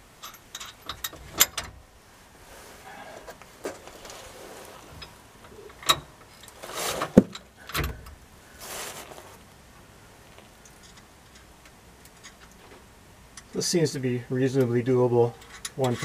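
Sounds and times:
metal tools clinking: 0.2 - 1.7
scuffing and rustling: 2.4 - 5.3, 6.5 - 7.3, 8.5 - 9.5.

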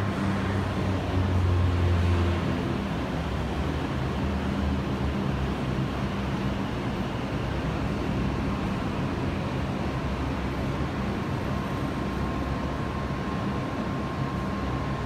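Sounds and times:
aerial tram mechanical hum: 0.0 - 15.0
faint steady whine: 4.9 - 15.0.

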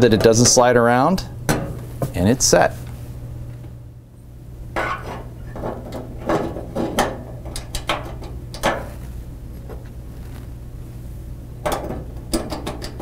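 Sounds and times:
metal burner caps clinking: 4.8 - 8.9.

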